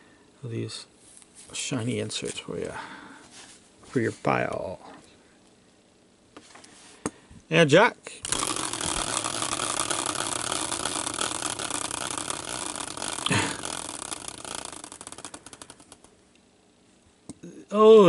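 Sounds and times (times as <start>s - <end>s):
prize wheel clicking as it spins: 8.2s - 16.1s.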